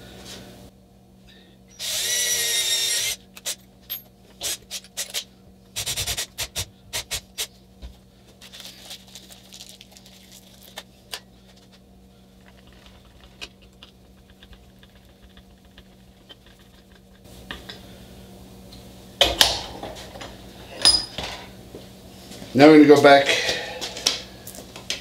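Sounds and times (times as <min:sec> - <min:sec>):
cordless drill motor running: 0:01.7 - 0:03.3.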